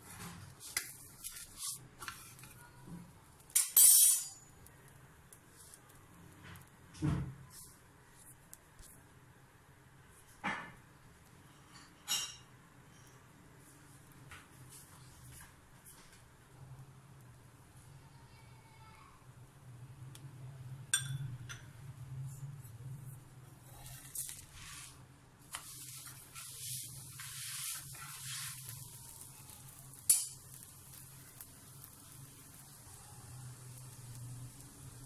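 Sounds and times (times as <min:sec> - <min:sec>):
flatbread sizzling in oil: 0:00.0 - 0:02.6, 0:03.3 - 0:06.8, 0:23.6 - 0:35.0.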